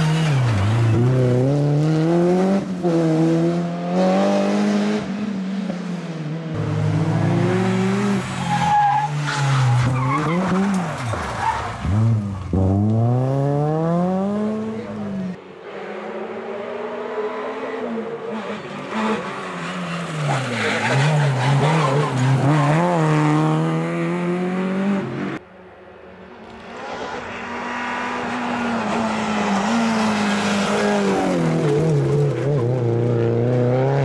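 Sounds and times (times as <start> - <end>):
rally car engine revving: 0.0 - 5.3, 6.4 - 11.2, 11.8 - 15.4, 16.0 - 25.4, 26.6 - 34.0.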